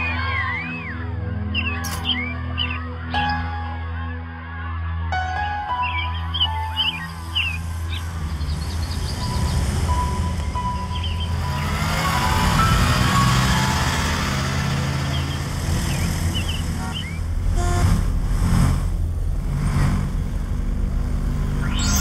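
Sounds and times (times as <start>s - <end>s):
hum of passing traffic: 6.2s - 22.0s
cars whooshing by: 7.4s - 22.0s.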